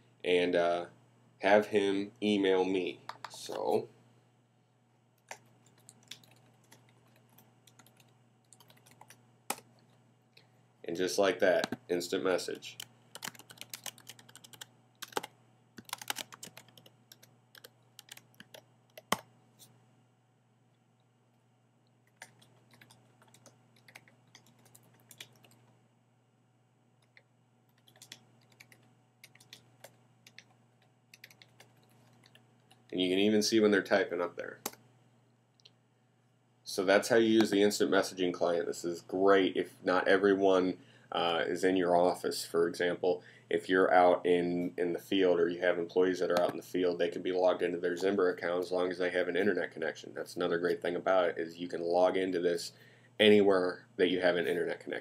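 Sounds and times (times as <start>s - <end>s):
typing on keyboard: 5.3s - 9.6s, 13.2s - 19.2s, 22.1s - 25.6s, 27.7s - 30.5s, 31.1s - 32.8s.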